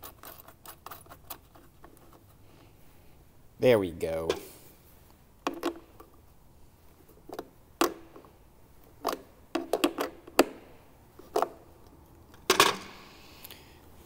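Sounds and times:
pliers clattering down: 0:12.4 - 0:13.0.

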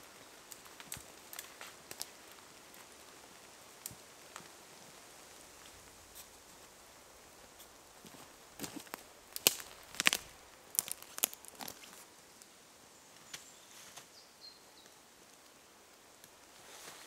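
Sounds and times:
leaves rustling: 0:00.0 - 0:17.0
footsteps crunching twigs: 0:07.6 - 0:12.1.

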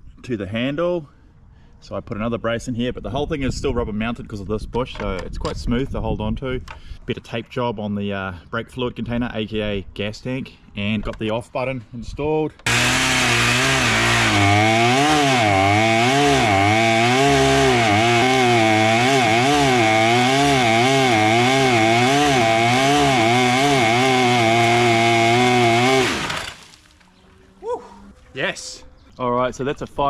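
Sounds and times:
chainsaw engine revving: 0:12.7 - 0:26.7.

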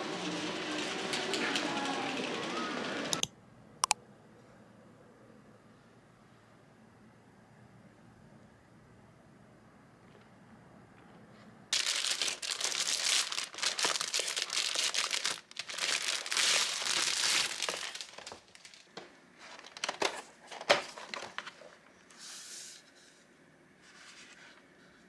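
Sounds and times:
plastic film crinkling: 0:11.7 - 0:21.4.

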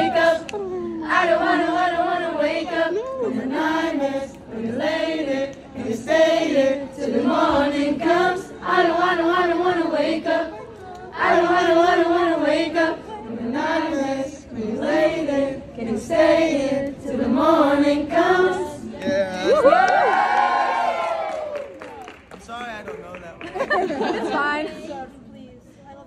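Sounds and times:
voices singing unaccompanied: 0:00.0 - 0:19.7.

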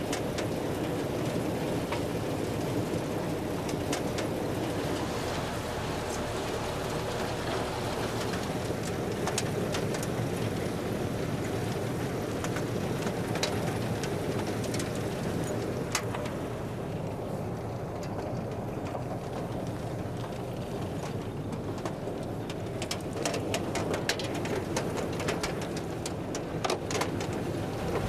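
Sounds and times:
harvester machinery rumble: 0:00.0 - 0:28.0
sharp clicks and knocks: 0:03.6 - 0:05.1, 0:18.0 - 0:28.0.

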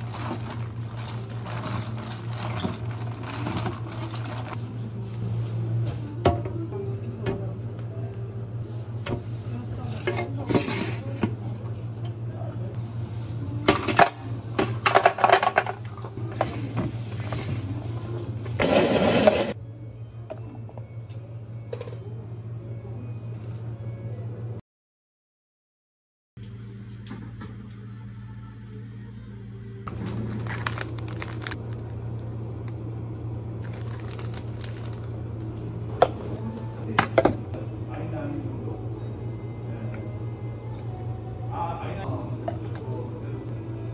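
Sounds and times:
steady low hum: 0:26.4 - 0:43.9.

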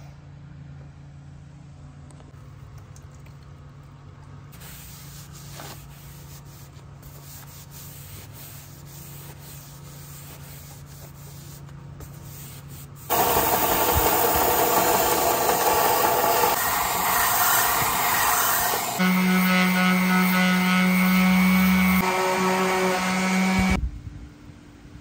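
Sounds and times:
belt sander running: 0:13.1 - 0:23.8.

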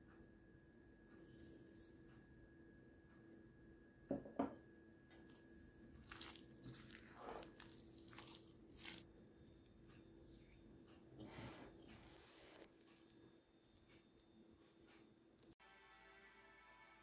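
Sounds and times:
spoon stirring fruit in a bowl: 0:05.1 - 0:09.1.

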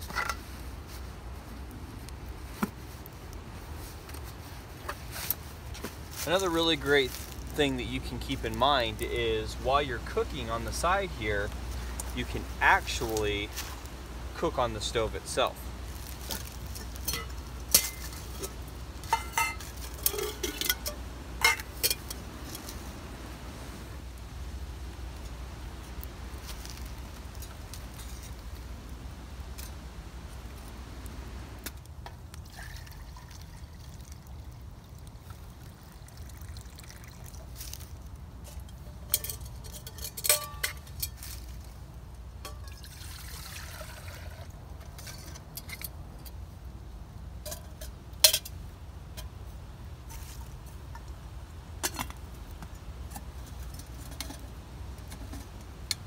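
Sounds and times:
low steady rumble: 0:05.5 - 0:56.0
metal cookware clinks and knocks: 0:19.1 - 0:22.2, 0:39.0 - 0:41.2
water poured into steel pot: 0:32.4 - 0:34.6, 0:35.2 - 0:37.9, 0:42.5 - 0:44.6.

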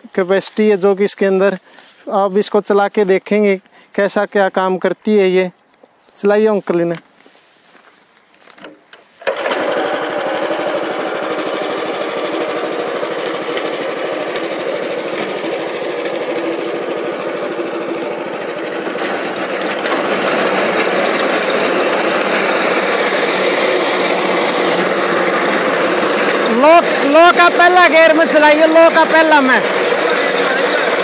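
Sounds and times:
cutter bar cutting crop: 0:09.2 - 0:31.0
reaper petrol engine running: 0:09.2 - 0:31.0.

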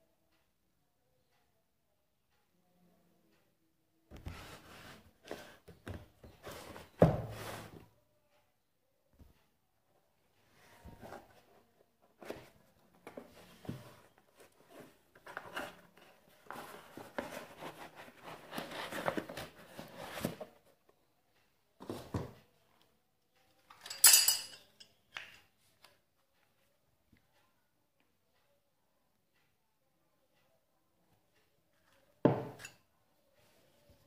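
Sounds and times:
scraping and rustling: 0:10.5 - 0:20.7
cardboard box handled: 0:12.2 - 0:20.7
metal spanners clattering: 0:23.8 - 0:24.6.

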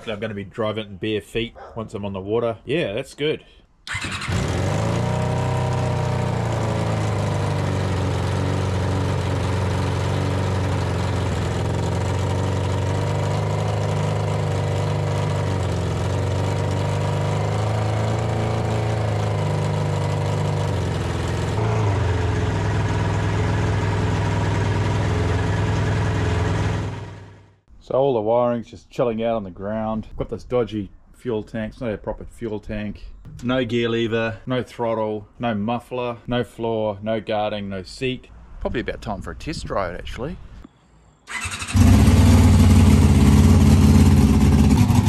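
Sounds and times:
motorcycle engine idling: 0:03.9 - 0:27.5, 0:41.3 - 0:45.0.

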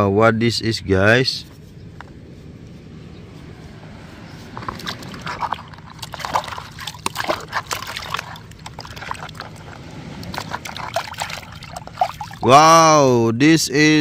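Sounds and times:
water splashing in plastic tub: 0:04.6 - 0:12.5.

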